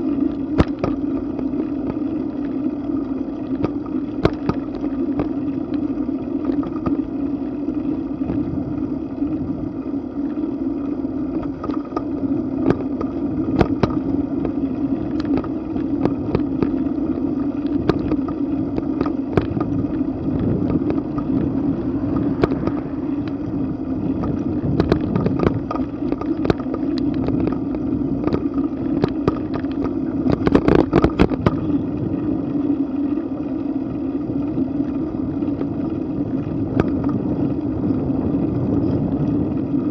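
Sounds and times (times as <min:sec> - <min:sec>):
bike clicks and rattles: 0:00.0 - 0:39.9
tyres rumbling on pavement: 0:00.0 - 0:39.9
wind noise: 0:06.5 - 0:10.0, 0:11.3 - 0:33.0, 0:33.8 - 0:39.9.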